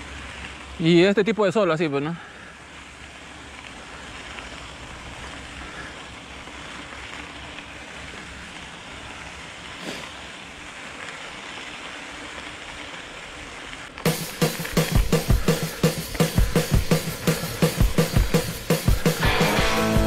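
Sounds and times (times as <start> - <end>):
bike tyres rolling on dirt: 0.0 - 20.0
drum-led music: 14.1 - 20.0.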